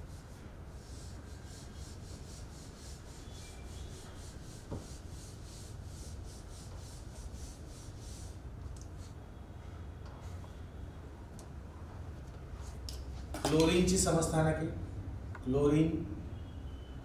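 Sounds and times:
duster rubbing on whiteboard: 0.0s - 9.2s.

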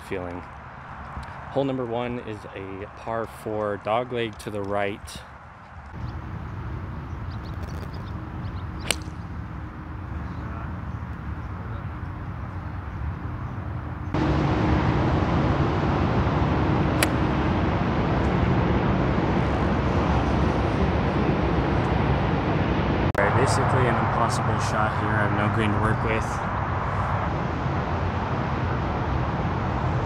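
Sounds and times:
outdoor background rumble: 3.2s - 30.0s
golf club striking ball: 8.8s - 9.4s, 17.0s - 17.3s.

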